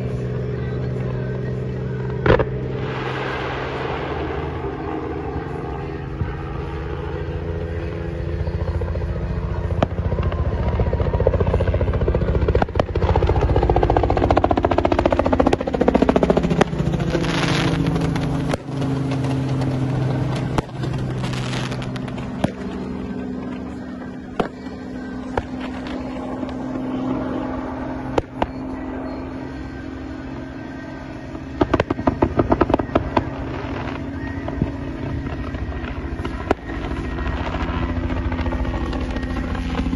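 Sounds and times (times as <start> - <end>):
helicopter flying past: 0.0 - 39.9
fireworks hissing and cracking: 2.6 - 5.7, 17.1 - 18.7, 20.3 - 22.7.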